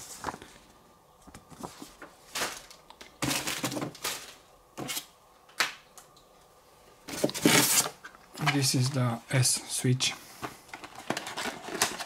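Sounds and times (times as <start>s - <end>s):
packaging rustling and clattering: 1.2s - 5.0s, 7.1s - 9.0s, 10.4s - 12.0s.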